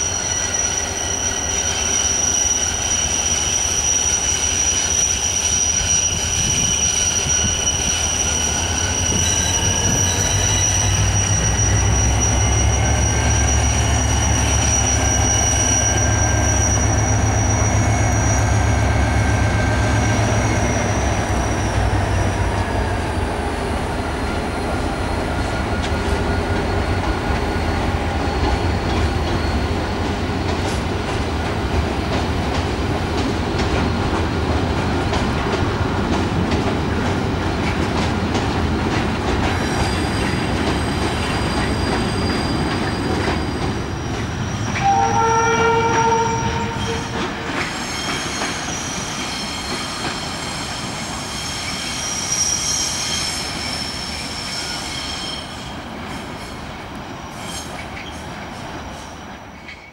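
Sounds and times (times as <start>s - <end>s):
thin squealing tones: 0.0s - 31.0s, 39.4s - 55.8s
diesel locomotive engine: 0.0s - 59.9s.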